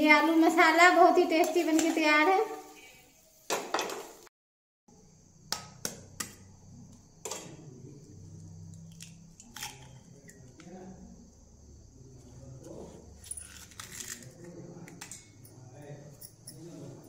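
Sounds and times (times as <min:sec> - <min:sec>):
eggshell cracking: 0:08.9 - 0:10.0.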